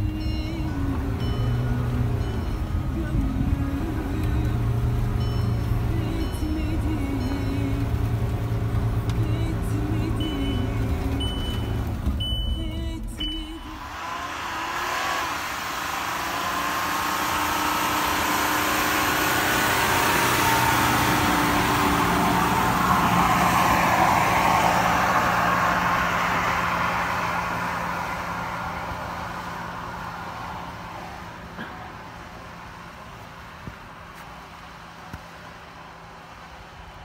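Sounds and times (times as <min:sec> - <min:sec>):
pickup truck driving past: 0:13.6 - 0:37.0.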